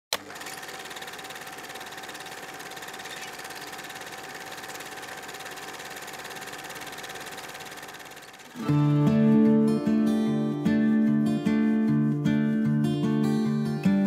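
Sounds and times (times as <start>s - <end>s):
film projector clattering: 0.1s - 8.7s
motor hum: 0.1s - 8.8s.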